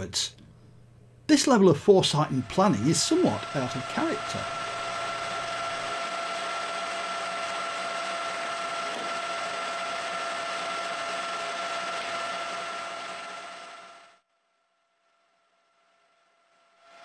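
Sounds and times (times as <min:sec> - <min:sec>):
lathe motor whining: 0:01.6 - 0:14.2.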